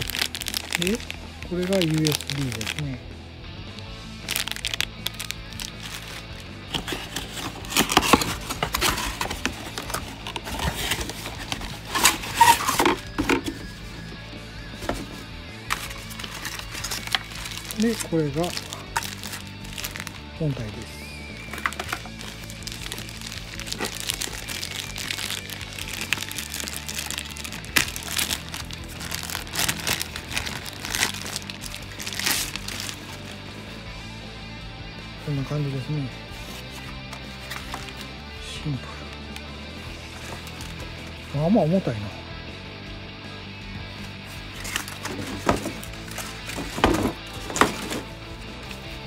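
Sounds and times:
plastic bag rustling: 0.0s - 3.0s, 4.2s - 14.0s, 14.8s - 20.8s, 21.4s - 33.6s, 40.0s - 41.1s, 44.2s - 49.0s
background music with low notes: 0.0s - 49.0s
cardboard box scraping and tapping: 6.7s - 13.8s.

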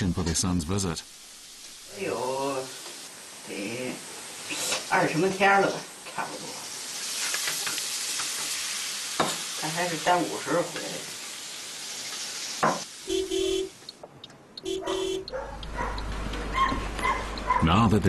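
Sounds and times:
food sizzling in a wok: 0.5s - 13.2s
car horn beeps: 13.0s - 13.8s, 14.6s - 15.4s.

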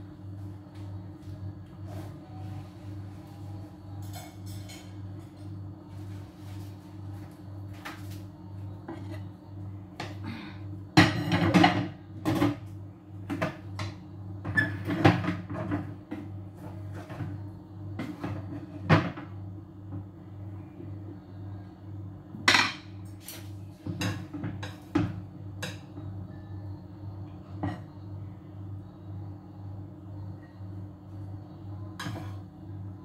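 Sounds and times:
dishes and pans clattering: 11.0s - 12.6s.

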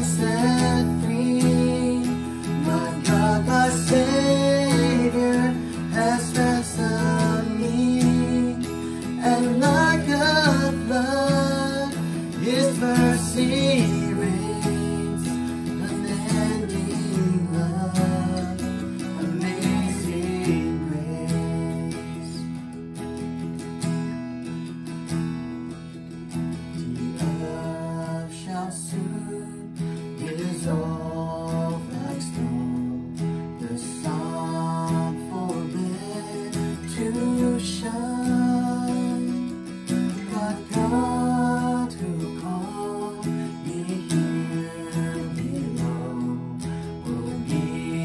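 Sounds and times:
woman singing: 0.0s - 22.4s, 40.2s - 48.0s
man singing: 0.0s - 22.6s, 26.7s - 48.0s
acoustic guitar strumming: 0.0s - 48.0s.

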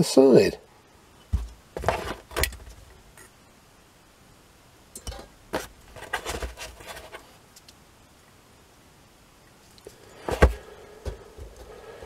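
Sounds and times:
light clicks and knocks of metal parts: 4.9s - 5.4s.

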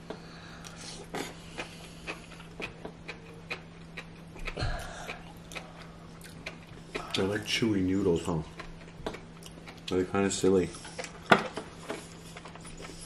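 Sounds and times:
faint steady hum: 0.0s - 13.0s
slurping and chewing noodles: 0.6s - 9.9s.

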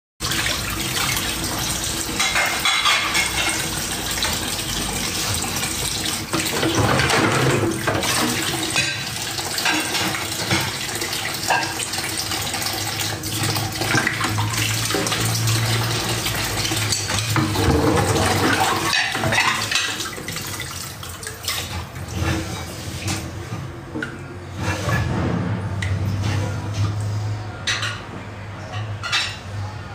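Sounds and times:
tap water running into sink: 0.2s - 24.2s
dishes and cutlery clattering: 2.1s - 4.4s, 6.3s - 12.0s, 13.3s - 20.5s, 24.0s - 29.6s.

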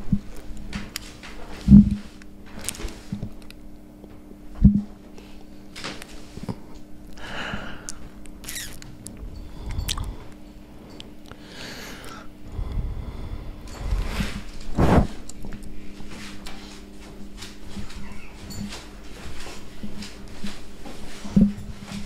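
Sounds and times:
microphone handling rustles and clicks: 0.0s - 5.1s, 13.6s - 22.0s
steady low hum: 0.0s - 22.0s.

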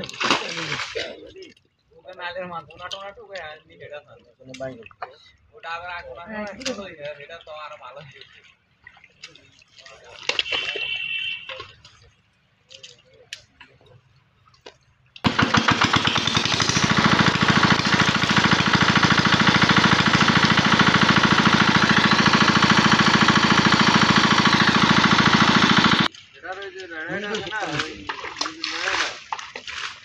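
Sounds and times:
engine-driven water pump running: 15.2s - 26.1s.

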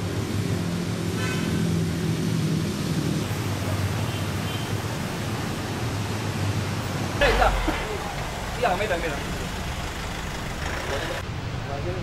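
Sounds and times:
road traffic noise: 0.0s - 12.0s
low engine hum: 7.2s - 11.2s.

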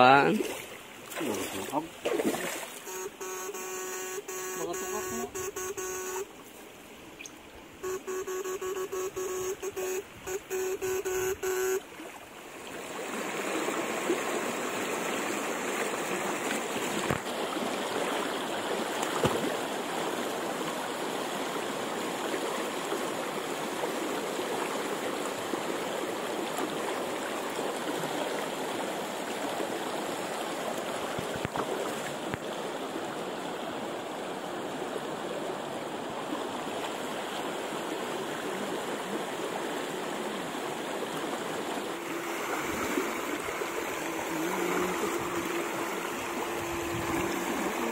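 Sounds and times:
pulsing electric buzz: 7.8s - 11.8s
river rushing over rocks: 12.4s - 47.9s.

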